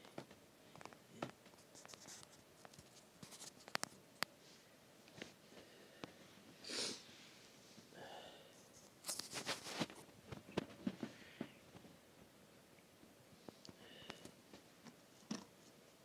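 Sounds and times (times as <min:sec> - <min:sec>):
sock fabric rustling: 0:08.9 - 0:11.8.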